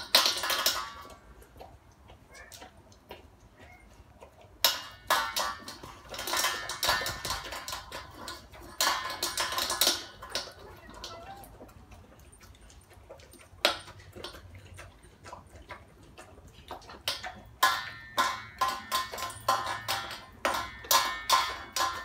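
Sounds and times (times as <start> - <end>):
kibble clattering in metal bowl: 0.0 - 1.4, 4.6 - 15.0, 16.6 - 22.0
dog crunching kibble: 0.0 - 22.0.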